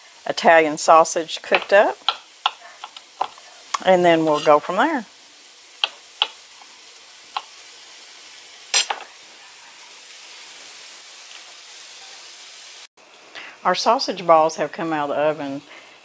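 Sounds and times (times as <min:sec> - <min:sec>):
sausage sizzling in a frying pan: 0:00.0 - 0:16.0
utensil scraping a pan: 0:04.1 - 0:04.8.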